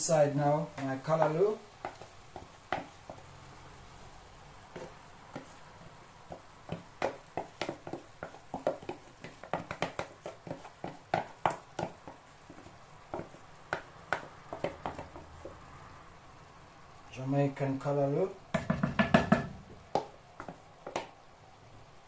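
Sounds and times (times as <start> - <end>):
wooden spoon tapping plastic tub: 0.7 - 3.2, 6.3 - 15.6, 18.5 - 21.2.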